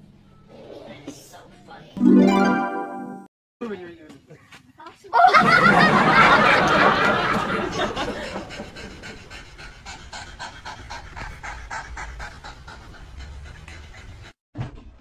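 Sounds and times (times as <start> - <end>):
cat panting: 7.9 - 14.4.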